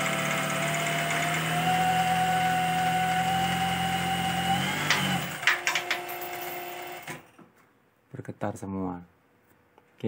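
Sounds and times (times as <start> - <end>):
sewing machine humming and whining: 0.0 - 7.3
sewing machine stopping clack: 4.8 - 7.3.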